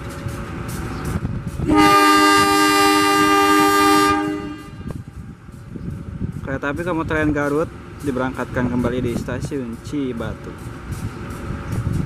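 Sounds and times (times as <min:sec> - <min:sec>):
locomotive horn blast: 0:01.6 - 0:05.0.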